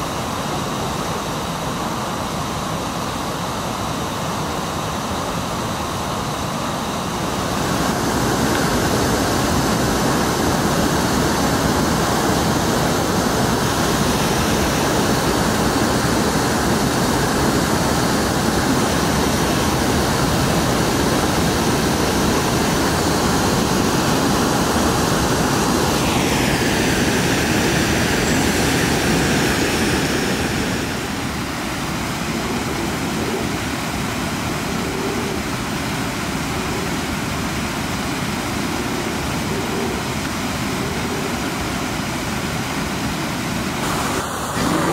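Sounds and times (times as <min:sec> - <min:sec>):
water rushing over waterfall: 0:00.0 - 0:44.9
high whine falling in pitch: 0:43.8 - 0:44.9.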